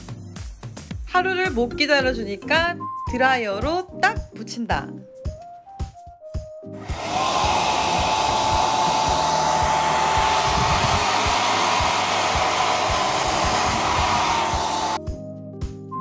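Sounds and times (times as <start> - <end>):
hair dryer blowing with whistle: 6.8 - 15.0.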